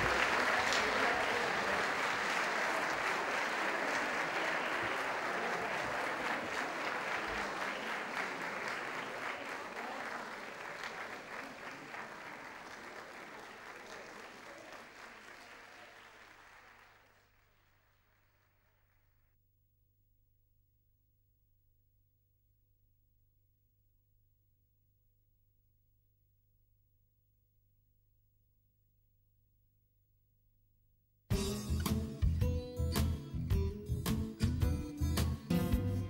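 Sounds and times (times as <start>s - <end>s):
audience applause: 0.0s - 19.2s.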